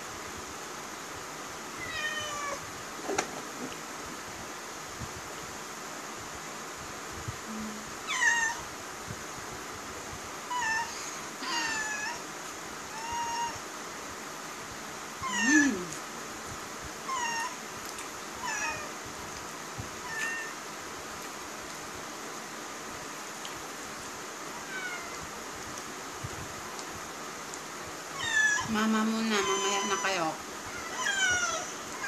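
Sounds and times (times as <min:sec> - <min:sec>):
cat meowing: 0:01.8 - 0:02.6, 0:08.1 - 0:08.6, 0:10.5 - 0:12.2, 0:18.4 - 0:18.9, 0:20.0 - 0:20.6, 0:28.2 - 0:28.7, 0:29.4 - 0:32.0.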